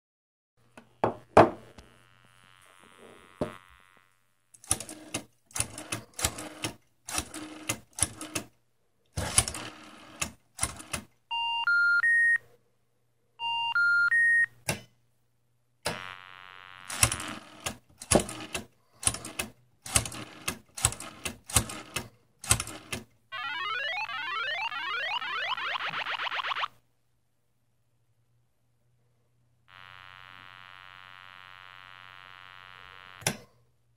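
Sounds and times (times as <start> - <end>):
electronic buzzing tone: 1.0 - 4.4, 15.9 - 17.5, 23.3 - 26.8, 29.7 - 33.3
sweeping electronic effect: 23.4 - 26.7
faint low hum: 23.4 - 33.9.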